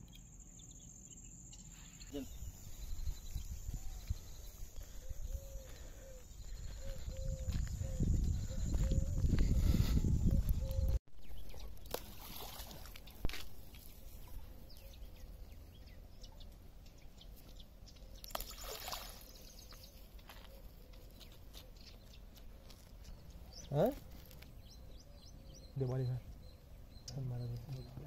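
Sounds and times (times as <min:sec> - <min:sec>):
faint bird chirps: 0:00.0 - 0:11.9, 0:13.8 - 0:28.0
bait splashing on water: 0:11.8 - 0:13.5, 0:18.2 - 0:19.5.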